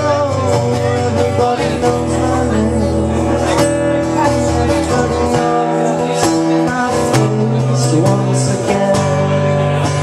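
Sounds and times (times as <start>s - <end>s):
acoustic guitar strumming: 0.0s - 10.0s
man singing: 0.0s - 10.0s.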